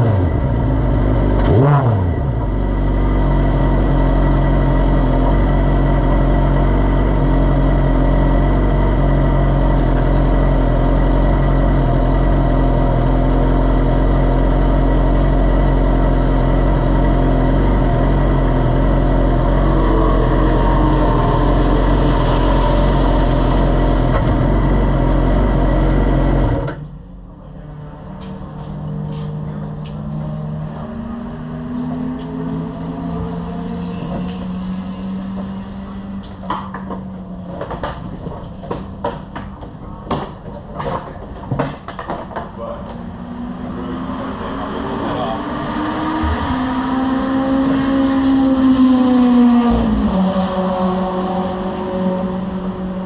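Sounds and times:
race car engine idling: 0.0s - 45.4s
engine rev blip: 43.5s - 51.6s.

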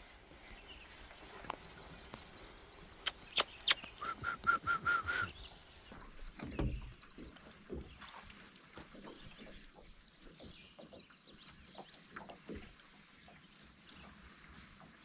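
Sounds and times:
faint bird chirps: 0.7s - 7.8s
short clear bird notes: 3.0s - 5.4s.

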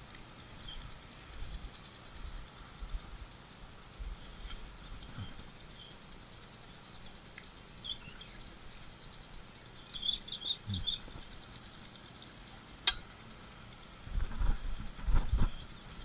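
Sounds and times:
faint bird chirps: 0.3s - 13.9s, 15.2s - 16.0s
sharp click: 12.8s - 13.1s.

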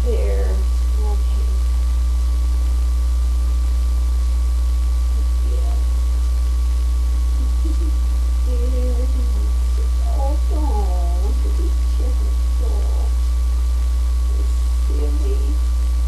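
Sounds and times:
soft vocal sounds: 0.0s - 1.6s, 5.1s - 6.3s, 7.0s - 13.4s, 14.1s - 16.0s
electrical mains hum: 0.0s - 16.0s.

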